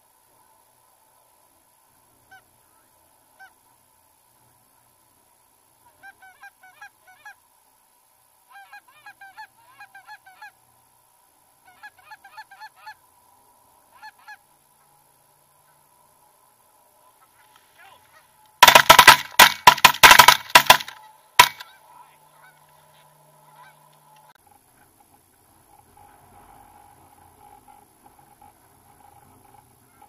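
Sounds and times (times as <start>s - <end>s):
goose honking: 2.3s - 3.6s, 5.8s - 7.4s, 8.5s - 10.6s, 11.6s - 13.0s, 13.9s - 14.9s, 20.8s - 24.3s
goose clucking rapidly: 17.2s - 24.0s.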